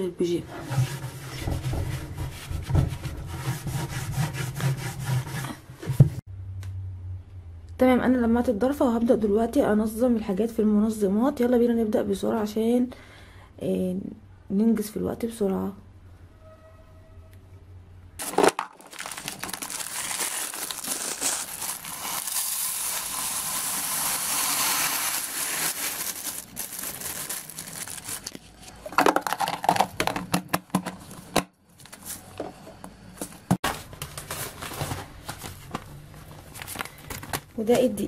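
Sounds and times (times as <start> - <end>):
lentils pouring into plastic container: 18.2 - 28.3
plastic bag crinkling: 18.2 - 29.8.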